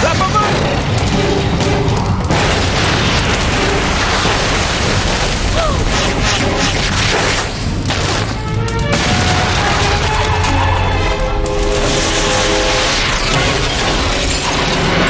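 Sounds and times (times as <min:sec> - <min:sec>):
cartoon rumbling and crashing: 0:00.0 - 0:11.0.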